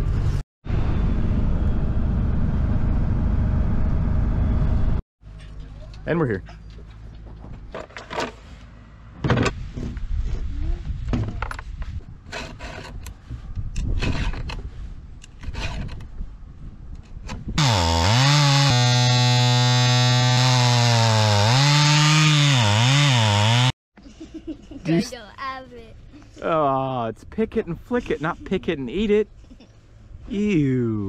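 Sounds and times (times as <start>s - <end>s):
file scraping saw chain: 12.3s - 13.0s
chainsaw cutting log: 17.6s - 23.7s.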